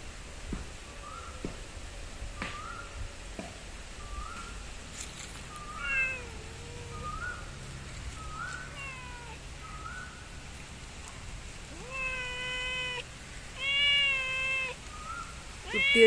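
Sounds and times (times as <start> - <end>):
cat meowing: 5.6 - 7.4, 8.3 - 9.4, 11.7 - 16.0.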